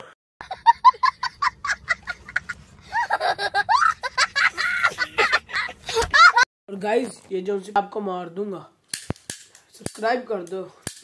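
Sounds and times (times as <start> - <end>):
child laughing: 0.4 - 6.5.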